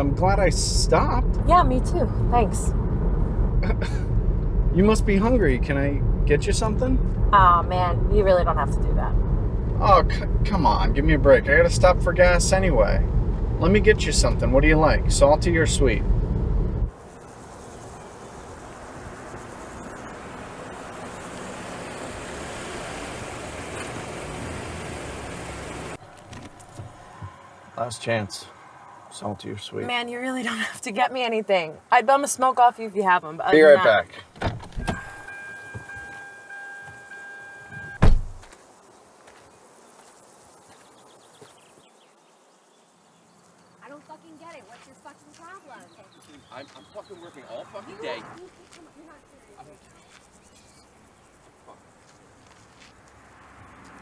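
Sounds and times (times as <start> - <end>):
car tyres and engine: 0.0 - 39.5, 45.2 - 54.0
car door slamming: 34.3 - 38.5
door-open warning chime: 34.8 - 38.0
faint chirps: 38.8 - 52.0.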